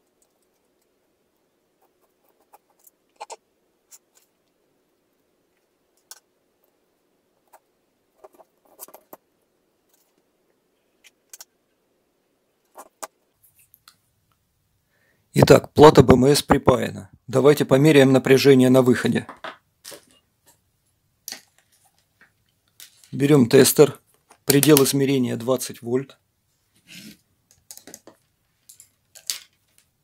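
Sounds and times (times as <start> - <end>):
small clicks and light knocks: 27.5 - 30.0.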